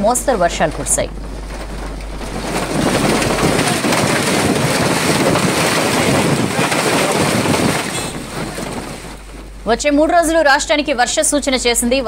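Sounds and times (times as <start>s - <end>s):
heavy rain pouring: 0.0s - 9.9s
wind buffeting microphone: 0.0s - 12.0s.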